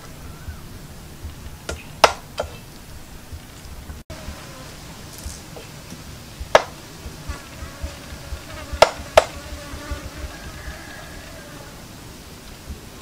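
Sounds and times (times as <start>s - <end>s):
faint steady buzz: 0.0s - 13.0s
sharp knocks: 1.7s - 2.6s, 5.2s - 9.8s.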